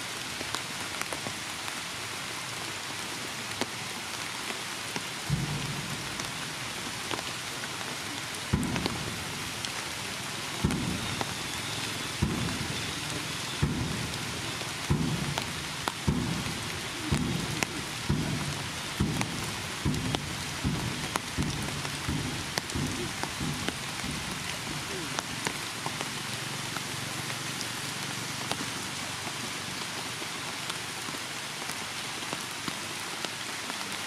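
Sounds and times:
heavy rain: 0.0 - 34.0
low thumps: 5.3 - 7.2, 13.6 - 25.5.

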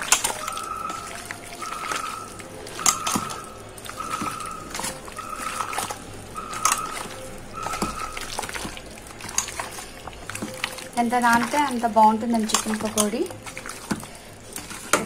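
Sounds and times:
hand squelching chicken in bowl: 0.0 - 14.9
short high tone beeping: 0.4 - 8.3.

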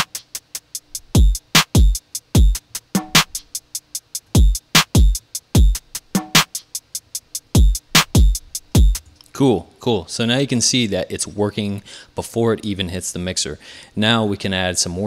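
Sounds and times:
hi-hat ticks: 0.0 - 9.3
deep kick drums: 1.1 - 3.4, 4.4 - 5.8, 7.6 - 9.0.

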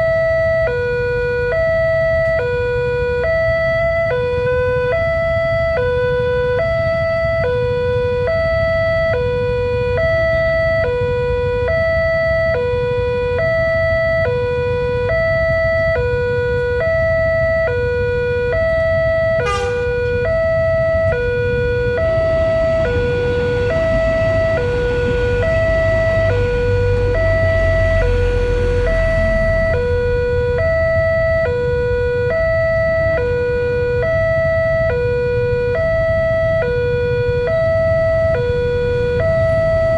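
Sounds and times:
passing train rumble: 19.0 - 31.4.

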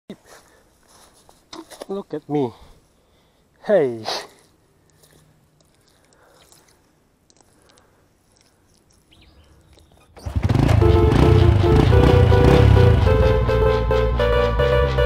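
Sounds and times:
wet mud squelching: 4.9 - 10.3.

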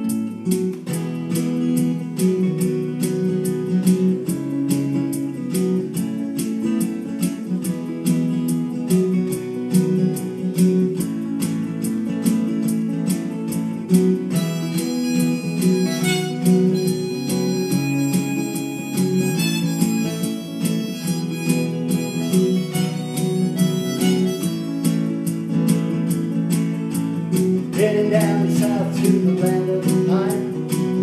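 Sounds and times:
acoustic guitar strumming: 0.0 - 31.0
harmonica long held notes: 14.4 - 25.3.

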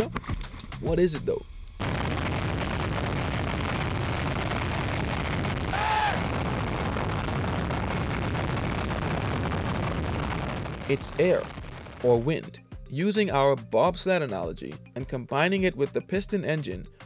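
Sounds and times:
jet engine blast roar: 1.8 - 11.6
short rising and falling cry: 1.8 - 11.6.

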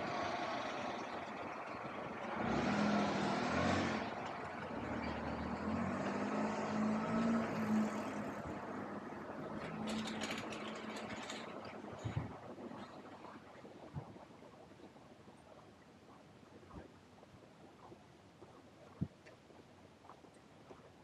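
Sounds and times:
engine humming: 0.0 - 13.2
vehicle passing: 2.2 - 11.4.

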